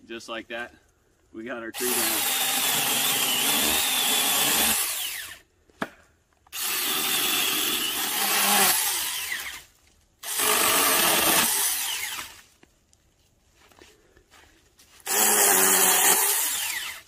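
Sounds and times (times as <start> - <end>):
mini chainsaw cutting wood: 1.8 - 5.4, 6.5 - 12.4, 15.0 - 17.0.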